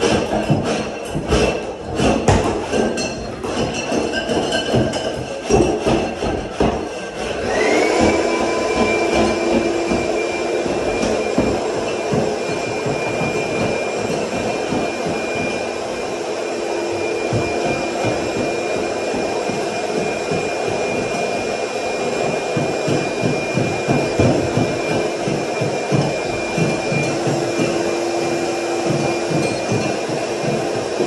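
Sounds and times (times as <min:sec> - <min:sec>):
debris knocking and clattering: 0:00.0 - 0:07.4
shop vacuum whining: 0:00.0 - 0:31.0.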